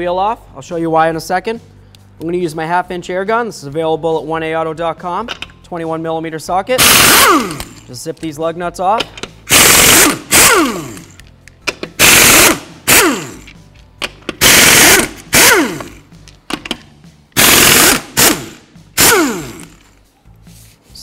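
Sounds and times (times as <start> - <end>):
impact wrench hammering: 6.8 - 7.8, 9.0 - 16.8, 17.4 - 19.8.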